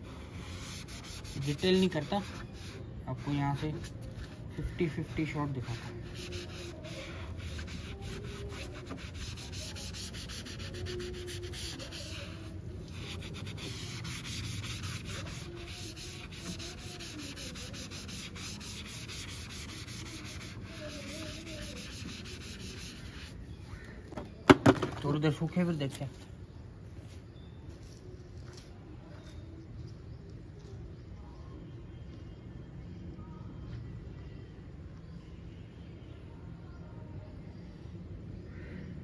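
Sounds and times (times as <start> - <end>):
foam pad rubbing on plastic: 5.4 - 23.4.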